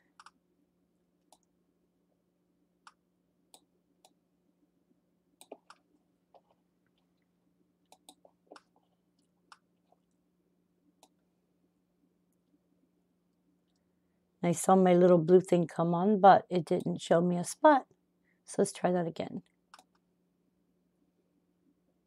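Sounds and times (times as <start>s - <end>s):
faint low hum: 0.0s - 22.0s
computer mouse clicks: 0.1s - 0.4s, 1.3s - 1.5s, 2.8s - 4.2s, 5.4s - 6.5s, 7.9s - 8.8s, 9.5s - 9.7s, 19.7s - 20.0s.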